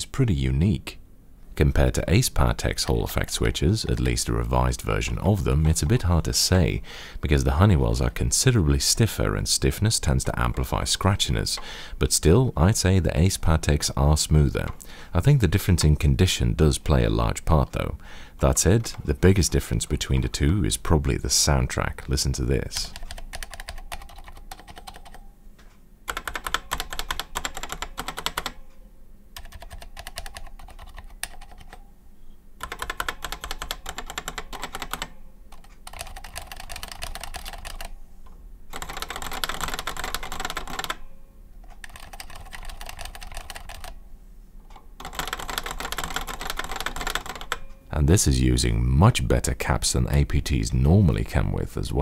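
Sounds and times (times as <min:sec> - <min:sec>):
rapid keyboard typing: 0:22.8 - 0:25.3, 0:26.1 - 0:28.6, 0:29.4 - 0:31.8, 0:32.6 - 0:38.0, 0:38.7 - 0:41.0, 0:41.6 - 0:44.0, 0:45.0 - 0:47.7.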